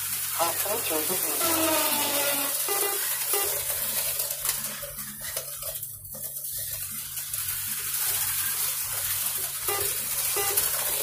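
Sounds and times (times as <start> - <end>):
slot car motors hissing: 0.2 - 4.1.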